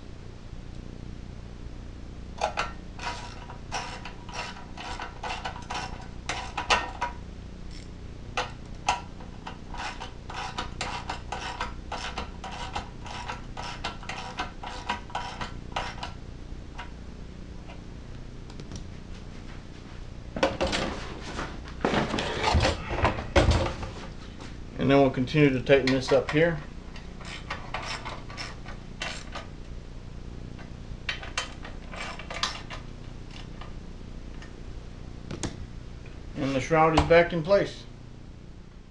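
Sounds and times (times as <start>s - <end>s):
tool handling noise: 25.7s - 29.5s.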